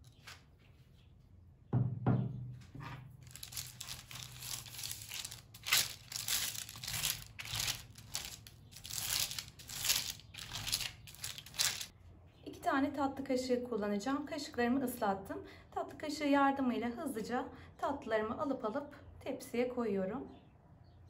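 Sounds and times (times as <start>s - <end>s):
parchment paper crinkling: 0.0s - 0.9s, 3.2s - 11.9s
low knock: 1.7s - 2.4s.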